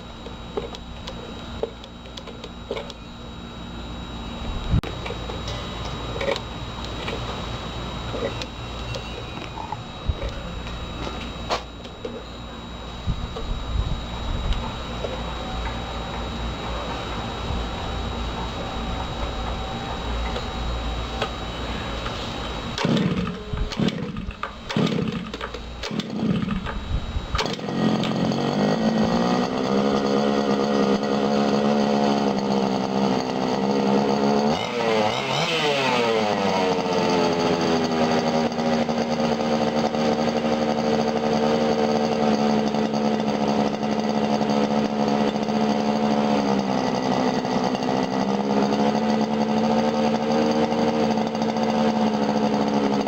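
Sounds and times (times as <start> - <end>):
two-stroke engine starting and idling: 15.0 - 53.0.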